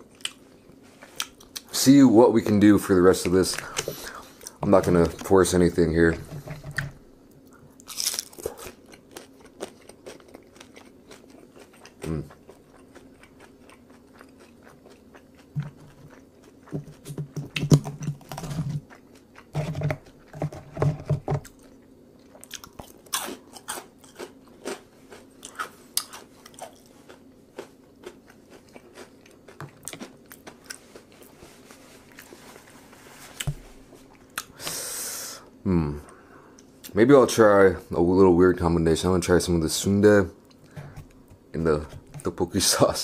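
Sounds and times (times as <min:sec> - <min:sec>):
person chewing food: 0:00.0 - 0:01.7, 0:06.2 - 0:32.8, 0:33.4 - 0:34.6.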